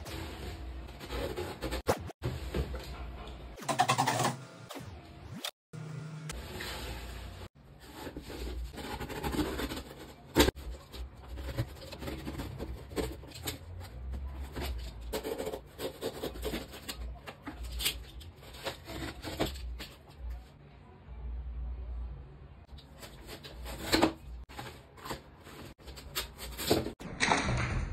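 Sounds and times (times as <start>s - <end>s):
cardboard scraping and rubbing: 0.0s - 2.8s, 6.4s - 20.2s, 22.8s - 27.0s.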